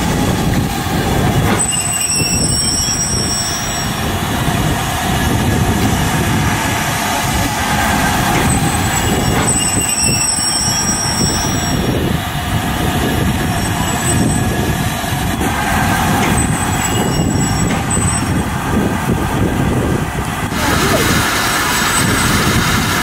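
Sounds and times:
steam hissing: 0.0 - 23.0.

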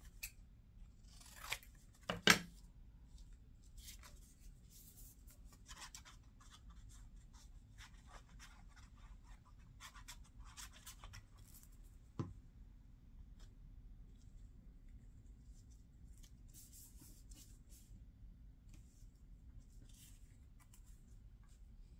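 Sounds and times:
paper rustling and scratching: 3.7 - 11.8.

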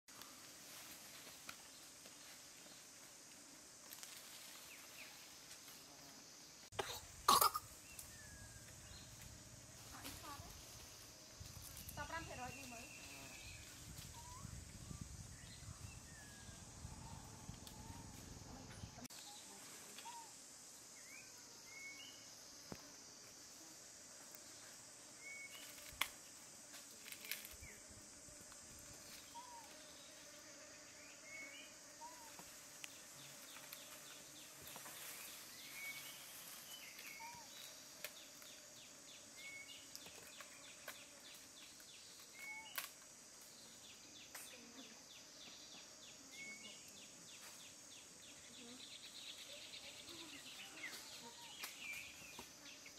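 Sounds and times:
high insect drone: 0.1 - 52.9
rising bird chirps: 12.9 - 19.0.

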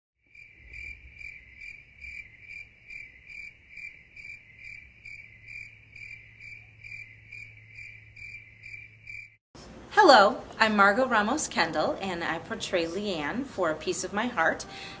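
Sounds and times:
crickets chirping: 0.3 - 9.4.

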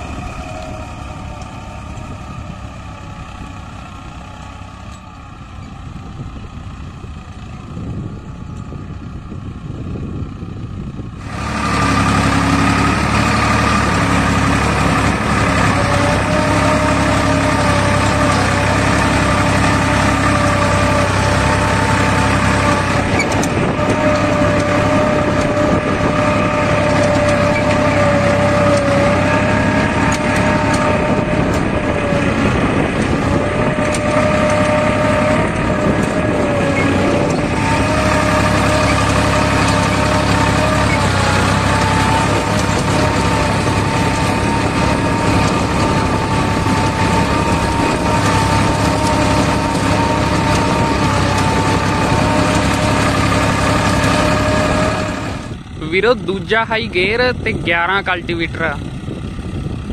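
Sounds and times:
tractor diesel engine running: 0.0 - 59.9.

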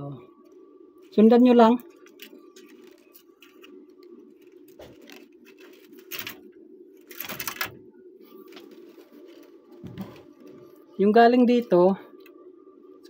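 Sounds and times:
steady low hum: 0.0 - 13.0
wires and circuit board rustling: 0.1 - 13.0.

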